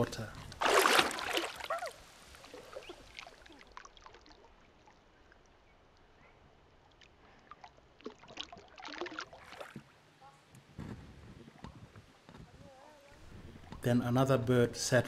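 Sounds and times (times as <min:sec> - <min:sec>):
water sloshing and trickling: 0:00.0 - 0:10.2
small water splashes: 0:00.4 - 0:10.2.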